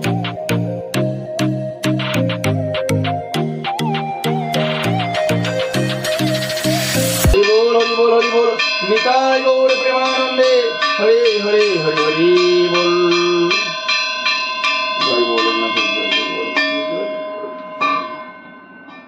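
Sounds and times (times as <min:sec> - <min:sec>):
held wavering tone: 0:00.0 - 0:09.0
hand bell ringing: 0:07.4 - 0:19.0.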